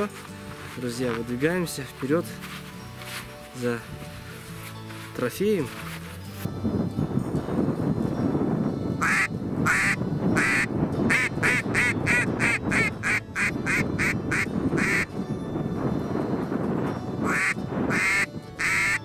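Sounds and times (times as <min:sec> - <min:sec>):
background music: 0:00.0 - 0:19.0
duck quacking: 0:09.0 - 0:15.1, 0:17.2 - 0:19.0.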